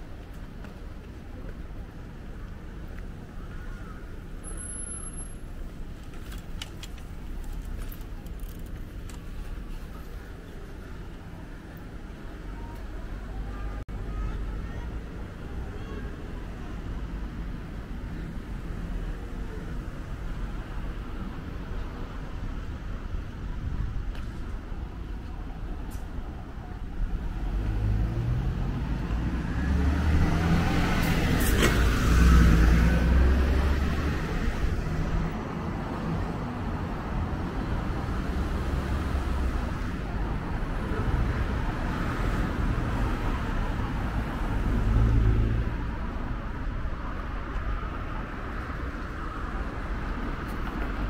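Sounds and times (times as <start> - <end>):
cars passing: 27.0 - 51.0.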